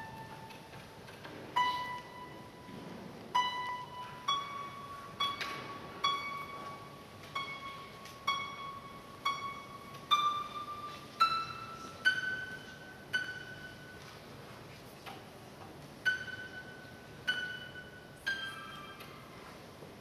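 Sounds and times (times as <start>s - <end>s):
harp plucked notes: 0.0s - 14.2s, 16.0s - 19.4s.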